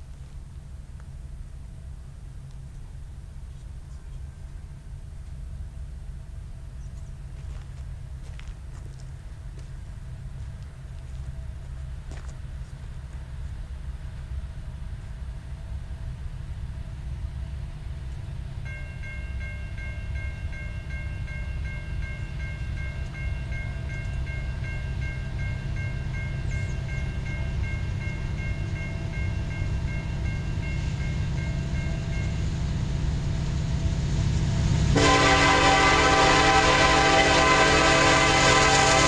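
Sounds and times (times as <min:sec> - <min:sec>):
freight train rumble: 0:00.0 - 0:39.0
train bell ringing: 0:18.6 - 0:39.0.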